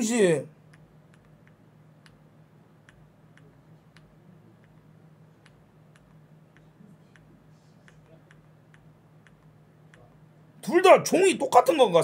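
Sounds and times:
low steady hum: 0.0 - 12.0
faint computer clicks: 0.6 - 10.2.

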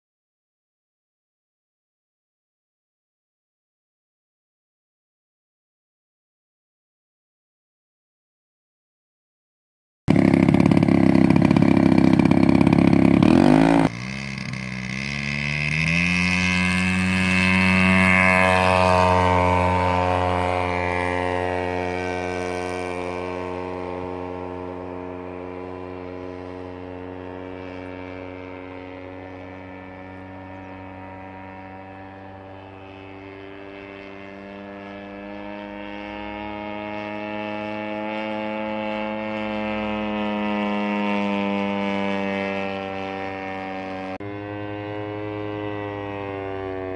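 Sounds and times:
model airplane engine droning: 10.1 - 46.9.

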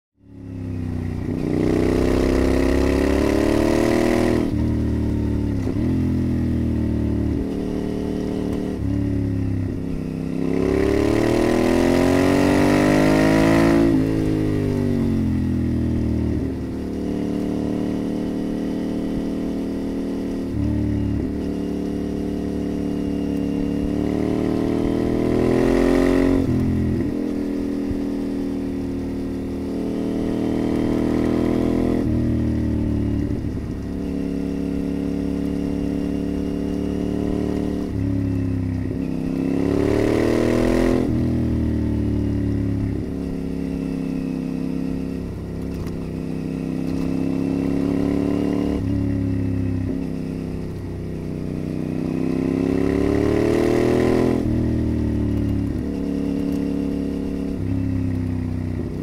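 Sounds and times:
motorcycle engine accelerating through gears: 0.2 - 59.0.

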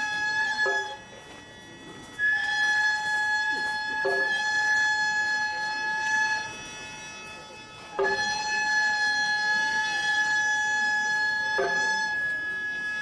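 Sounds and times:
wind instrument long note: 2.2 - 13.0
sharp percussion strikes: 3.3 - 9.4.

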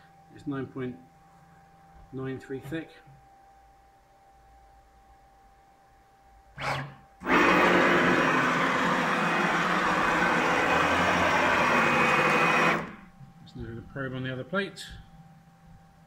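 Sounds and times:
router motors whining: 6.6 - 13.1
short burst of motor noise: 6.6 - 13.1.

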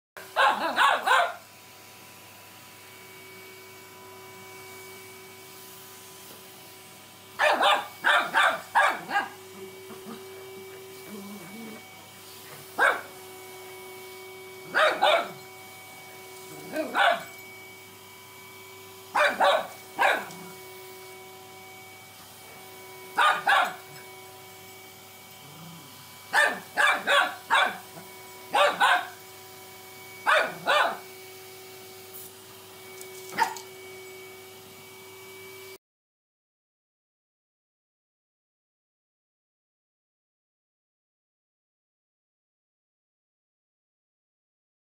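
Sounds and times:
puppy barking: 0.2 - 1.4, 7.4 - 10.5, 12.7 - 13.1, 14.6 - 15.5, 16.6 - 17.4, 19.1 - 20.5, 23.2 - 24.0, 26.3 - 29.2, 30.2 - 31.0, 33.3 - 33.7.

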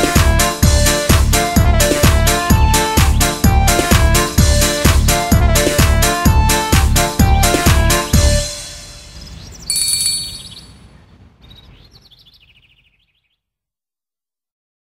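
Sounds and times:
birds chirping: 2.8 - 3.8, 7.4 - 13.5.

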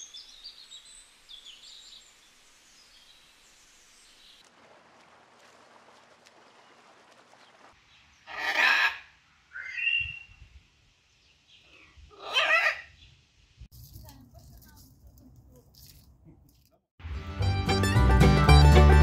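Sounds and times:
faint outdoor background noise: 0.0 - 16.8
macaw squawking: 8.3 - 10.2.

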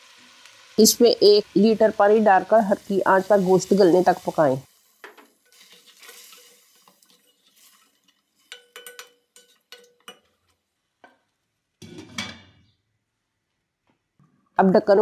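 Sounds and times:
ladle clinking against metal pot: 8.4 - 10.4
glass lid clattering on pot: 8.5 - 10.3.

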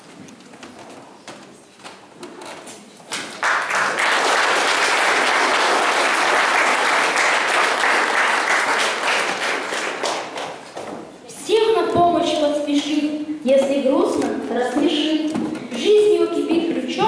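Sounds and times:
audience applauding: 3.1 - 10.8.

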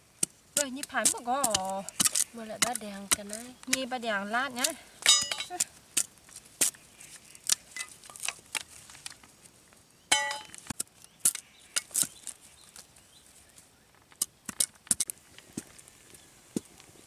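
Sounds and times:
machete cutting wooden sticks: 0.2 - 3.9, 4.5 - 6.8, 10.1 - 12.4, 14.2 - 15.1
metallic clink: 5.0 - 5.7, 10.1 - 10.6.

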